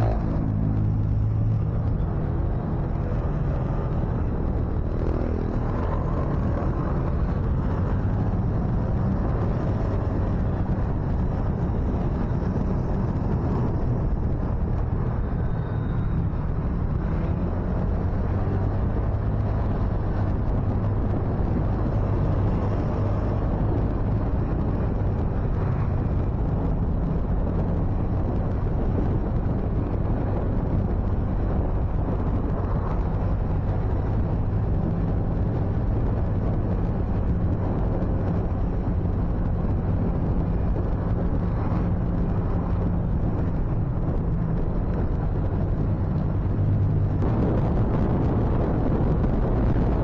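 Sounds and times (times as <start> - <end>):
motorcycle engine rumble: 0.0 - 50.0
wind buffeting microphone: 0.0 - 50.0.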